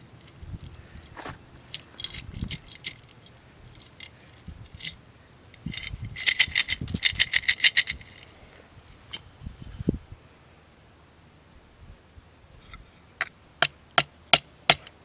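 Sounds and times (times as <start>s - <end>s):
coins and beads jingling in pot: 0.2s - 8.9s.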